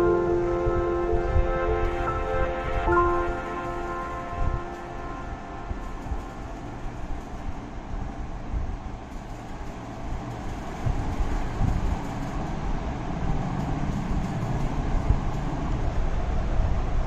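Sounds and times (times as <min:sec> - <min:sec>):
low rumbling with bumps: 0:03.5 - 0:17.0.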